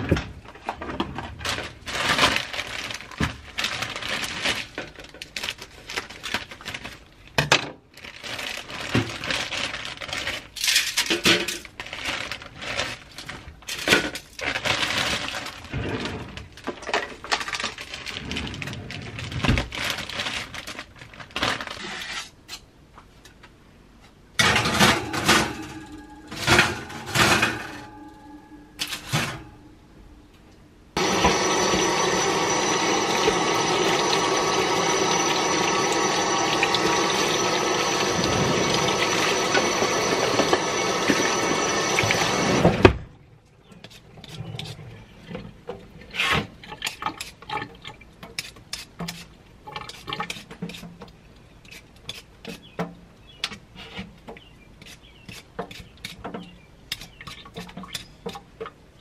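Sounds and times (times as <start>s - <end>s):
plastic bag crinkling: 1.3s - 7.3s, 7.9s - 10.7s, 11.6s - 15.7s, 16.6s - 22.0s
kitchen tap running: 31.0s - 42.7s.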